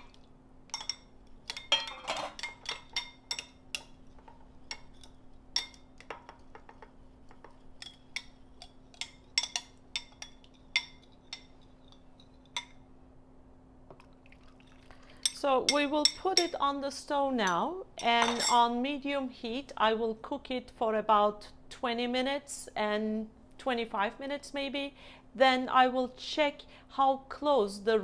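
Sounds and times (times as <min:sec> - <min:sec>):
spoon clinking against glass bowl: 0:00.7 - 0:03.9, 0:07.8 - 0:12.8.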